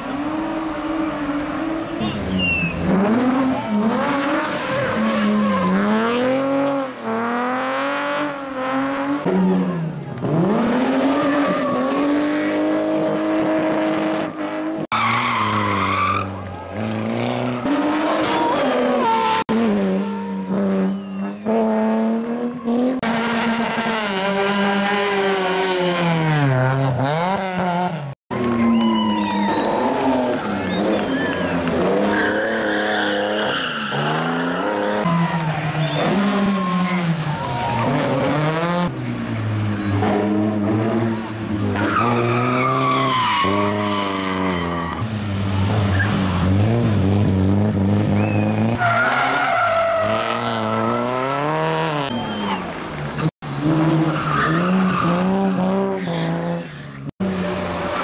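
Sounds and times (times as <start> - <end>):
rally car engines revving: 0.0 - 58.0
tyre squeal: 2.0 - 2.9, 28.7 - 35.1.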